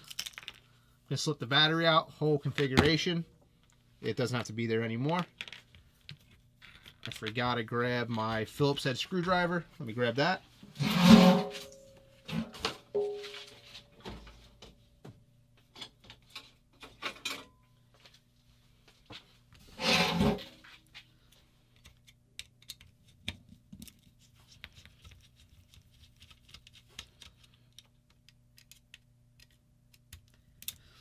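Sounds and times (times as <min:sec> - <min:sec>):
faint steady hum: 0:00.0 - 0:31.0
rustling scrape: 0:10.6 - 0:11.8, 0:19.6 - 0:20.8.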